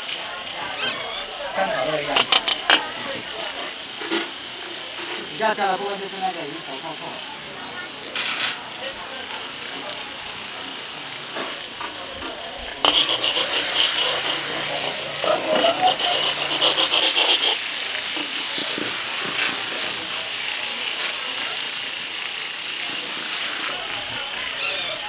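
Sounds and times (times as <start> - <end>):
sausages sizzling in oil: 0.0 - 25.0
metal skimmer stirring: 12.8 - 17.6.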